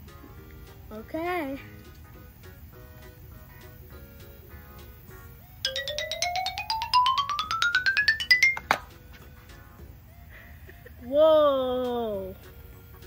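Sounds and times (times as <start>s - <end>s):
soft background music: 0.0s - 13.0s
rising chime-like notes: 5.7s - 8.8s.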